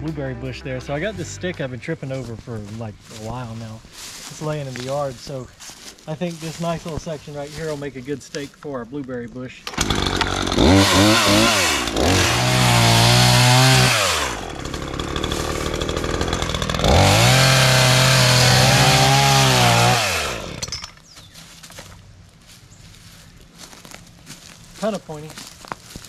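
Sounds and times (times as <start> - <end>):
battery chainsaw cutting wood: 9.7 - 20.9.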